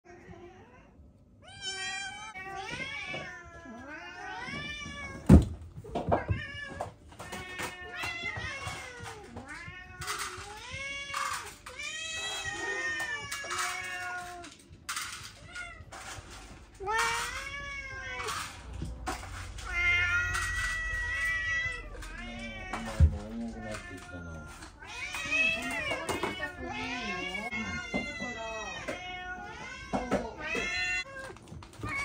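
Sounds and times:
cats meowing: 0.1 - 32.0.

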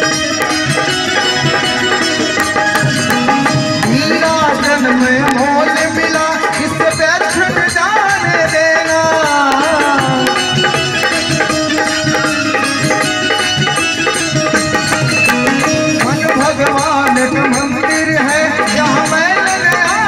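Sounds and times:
hand drum beat: 0.0 - 20.0
keyboard melody: 0.0 - 20.0
man singing: 3.5 - 11.2, 16.0 - 20.0.

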